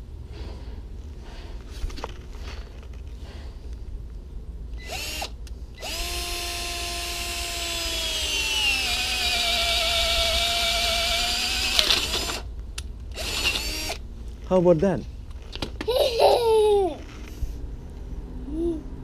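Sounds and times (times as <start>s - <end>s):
drill boring into wood: 4.8s - 12.5s, 13.1s - 14.0s.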